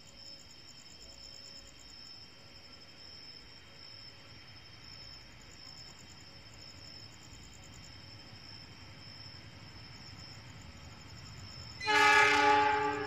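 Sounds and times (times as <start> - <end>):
crickets chirping: 0.0 - 13.0
train rumble: 7.7 - 13.0
train horn blast: 11.8 - 13.0.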